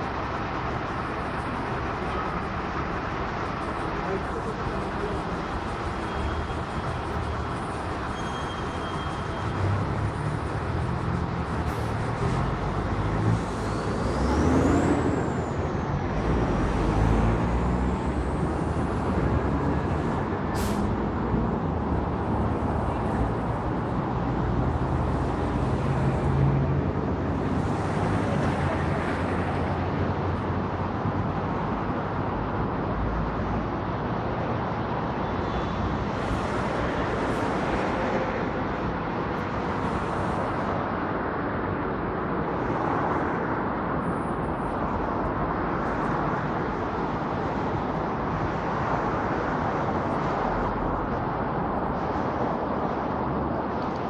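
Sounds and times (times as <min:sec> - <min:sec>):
passing cars rumbling: 0:00.0 - 0:54.0
thin high squeal: 0:08.1 - 0:09.4.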